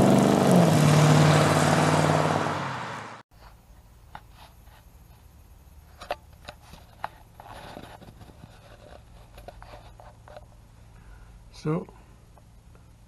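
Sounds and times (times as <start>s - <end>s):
scraping rustle: 3.3s - 10.6s.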